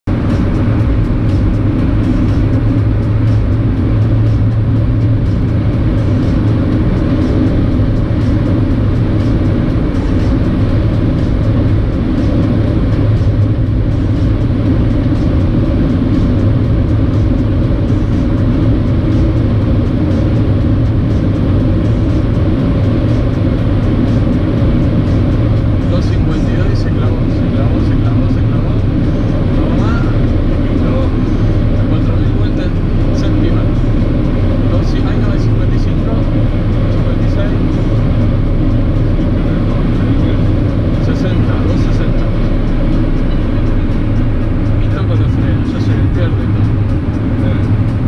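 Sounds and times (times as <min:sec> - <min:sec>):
car engine drone: 0:00.0 - 0:48.0.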